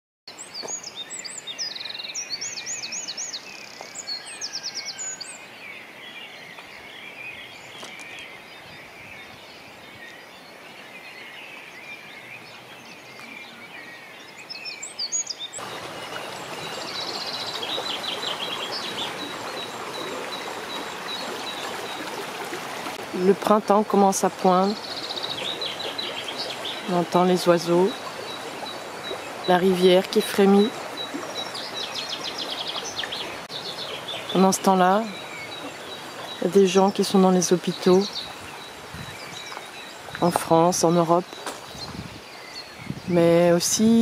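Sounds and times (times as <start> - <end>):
songbirds singing: 0.3 - 44.0
river rushing: 15.4 - 43.8.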